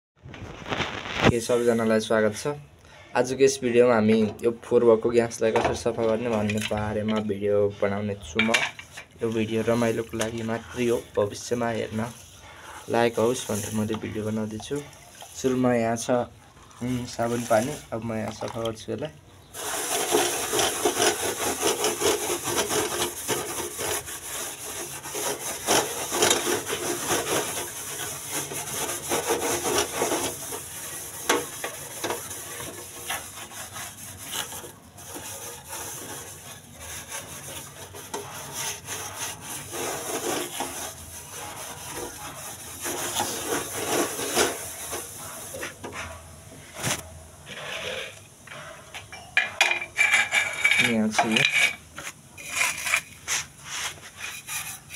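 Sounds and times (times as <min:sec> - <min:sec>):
hand scrubbing stove top: 0:08.7 - 0:16.1, 0:19.5 - 0:46.9, 0:52.5 - 0:54.9.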